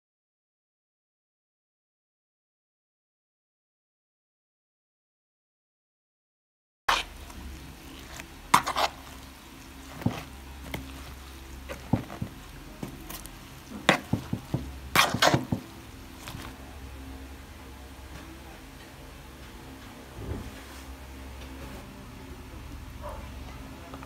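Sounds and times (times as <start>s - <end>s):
spatula knocking and scraping bowl: 6.9s - 7.3s, 7.9s - 16.5s
wet vegetables being mixed: 6.9s - 24.0s.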